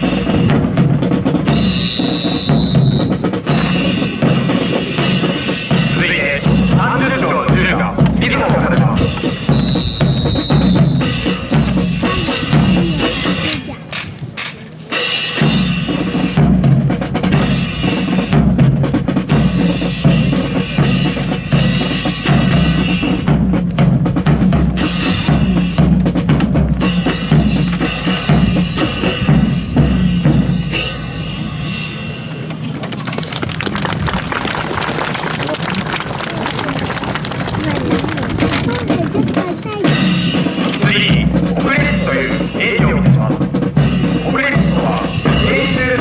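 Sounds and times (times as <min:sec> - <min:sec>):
military band playing a march: 0:00.0 - 0:46.0.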